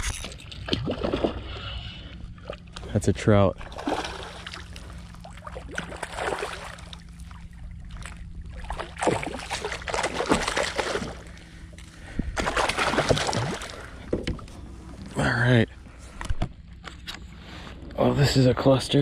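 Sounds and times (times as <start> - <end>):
water splashing and sloshing: 0.0 - 17.7.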